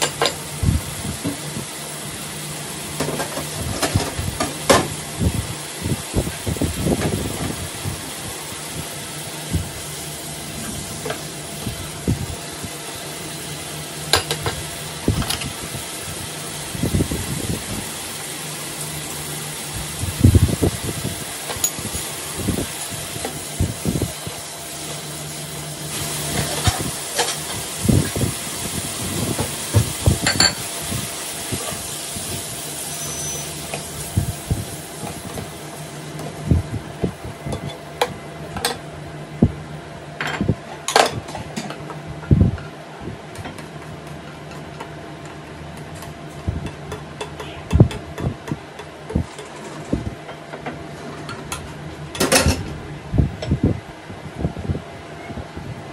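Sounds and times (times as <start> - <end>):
food sizzling in a frying pan: 0.1 - 37.9.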